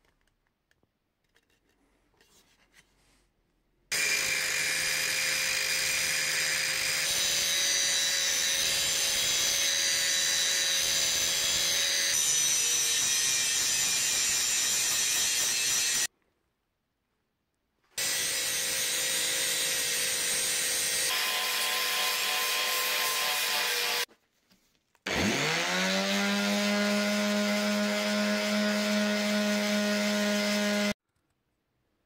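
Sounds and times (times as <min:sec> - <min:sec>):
angle grinder grinding steel: 0:03.9 - 0:16.1, 0:18.0 - 0:24.1, 0:25.1 - 0:31.0.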